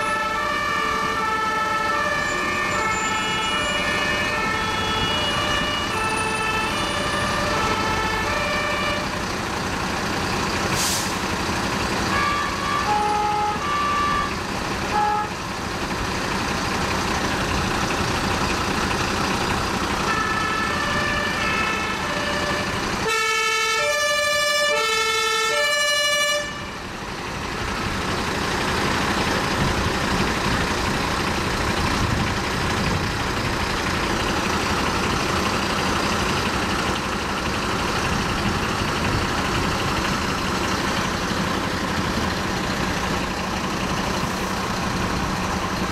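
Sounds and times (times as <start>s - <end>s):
fire engine two-tone horns: 0.0s - 9.3s, 10.8s - 11.2s, 12.0s - 15.6s, 20.0s - 27.0s
truck engine: 0.0s - 45.9s.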